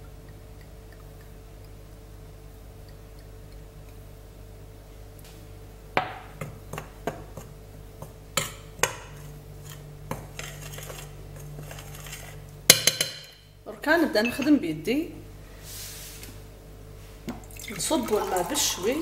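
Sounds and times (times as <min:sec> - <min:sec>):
metal spoon clinking glass bowl: 0:14.2 - 0:14.6.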